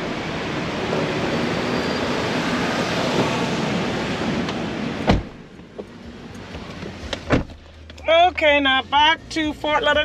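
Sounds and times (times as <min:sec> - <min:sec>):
sharp thump: 0:05.1 - 0:05.4.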